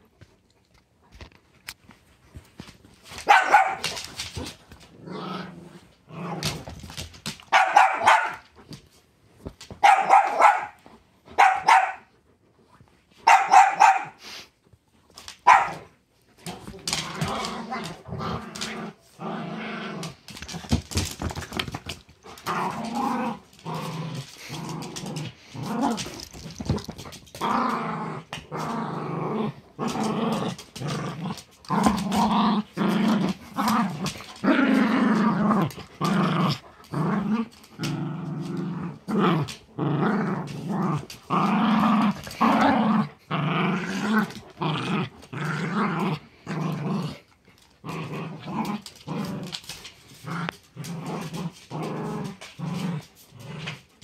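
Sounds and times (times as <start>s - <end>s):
dogs growling in play: 3.8s - 7.4s, 15.1s - 54.0s.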